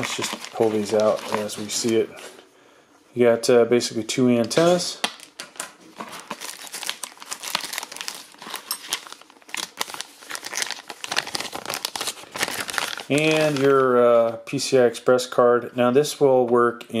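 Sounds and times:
plastic bag crinkling: 0:00.0 - 0:02.1, 0:04.6 - 0:14.0.

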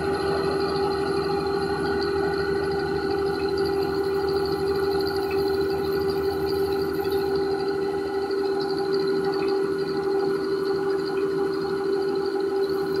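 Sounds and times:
steady machine hum: 0:00.0 - 0:13.0.

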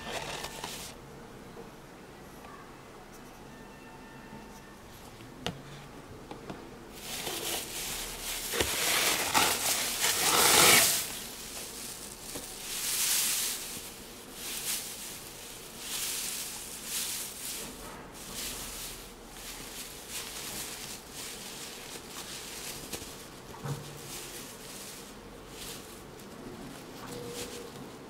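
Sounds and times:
paper and cardboard box rustling: 0:00.0 - 0:01.0, 0:07.0 - 0:28.0.

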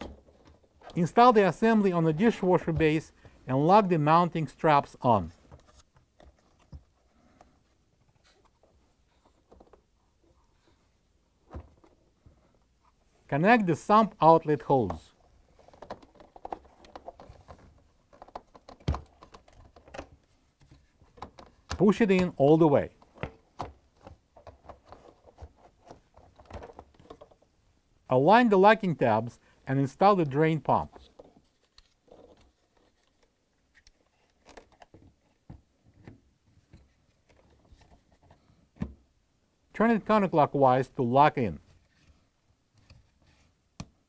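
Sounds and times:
plastic parts clicking and scraping: 0:05.4 - 0:10.8, 0:14.8 - 0:27.5, 0:30.8 - 0:38.5.

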